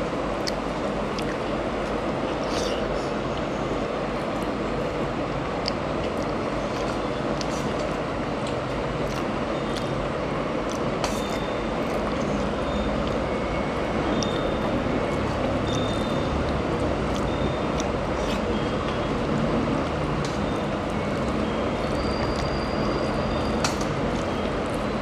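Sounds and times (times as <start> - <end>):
chewing: 0.4 - 3.5, 5.6 - 10.0, 10.6 - 13.3, 14.2 - 22.9.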